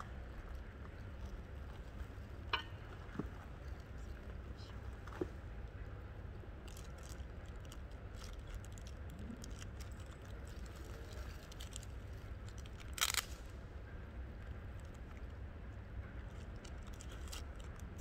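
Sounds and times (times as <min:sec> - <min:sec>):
low background hum: 0:00.0 - 0:18.0
small objects handled: 0:06.7 - 0:13.5, 0:16.3 - 0:18.0.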